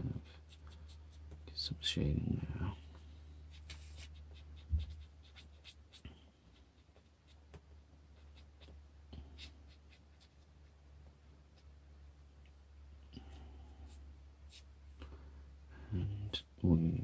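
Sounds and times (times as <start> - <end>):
pen scratching on paper: 0.1 - 1.4, 3.5 - 10.5.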